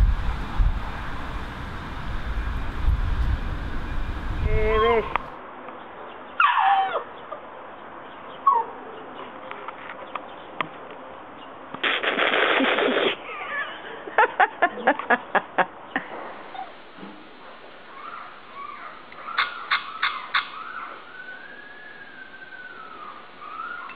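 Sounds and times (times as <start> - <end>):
puppy yelping: 6.4 - 7.1, 8.4 - 8.8, 17.9 - 23.9
burst of noise: 11.8 - 13.2
puppy whining: 20.5 - 23.9.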